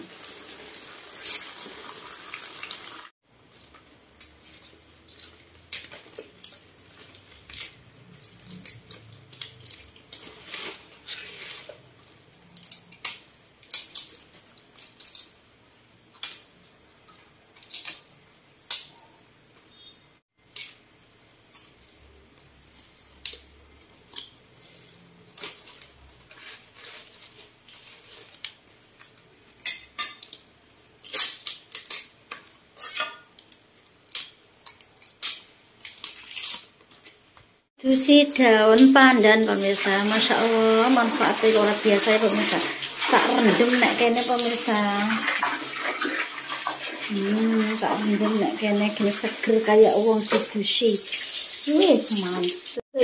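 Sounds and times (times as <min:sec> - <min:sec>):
running water: 0:00.0 - 0:03.1, 0:38.0 - 0:52.8
leaves snapping and rustling: 0:17.5 - 0:18.9, 0:25.3 - 0:29.2, 0:31.0 - 0:32.6, 0:33.4 - 0:37.4.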